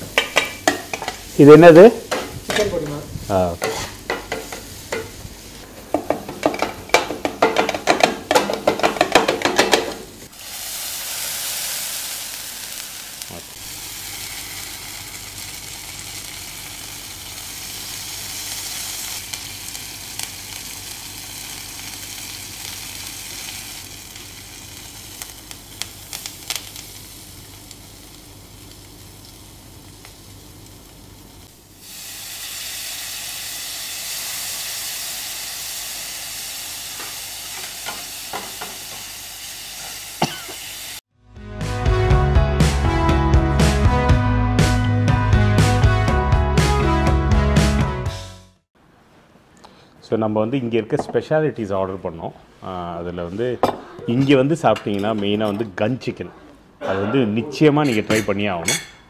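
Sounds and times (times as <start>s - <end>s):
metal spatula chopping on griddle: 3.6s - 5.1s
chicken sizzling on griddle: 10.3s - 41.0s.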